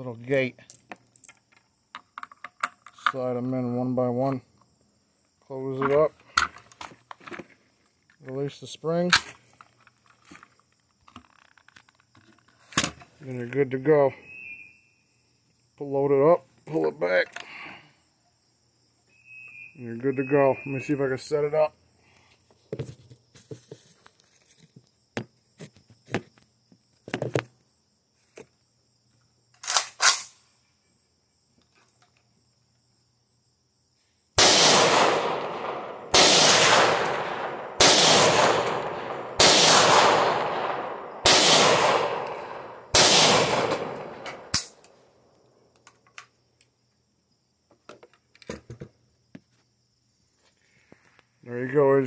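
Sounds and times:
rifle handling clicks: 29.6 - 30.3, 38.4 - 42.6, 43.2 - 45.0
rifle single shots: 29.6 - 30.4, 34.4 - 44.9.

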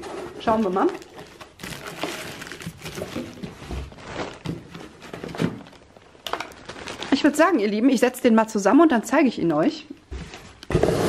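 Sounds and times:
plastic wrapping crinkling: 0.4 - 8.1.

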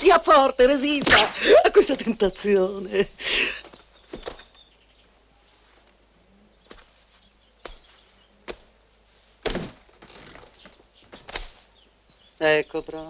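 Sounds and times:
soft footsteps on floor: 6.6 - 8.7
loud thump: 9.4 - 10.0.

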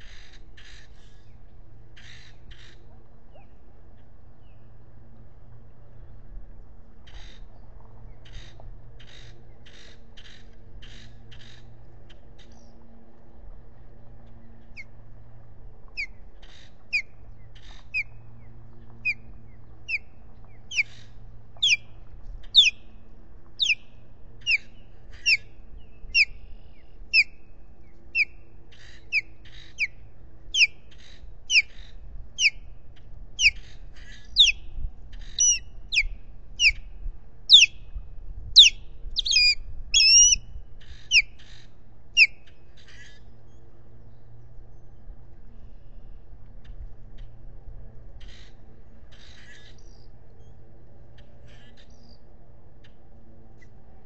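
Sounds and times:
osprey whistled chirps: 35.4 - 36.8, 37.5 - 37.8, 38.6 - 40.4.

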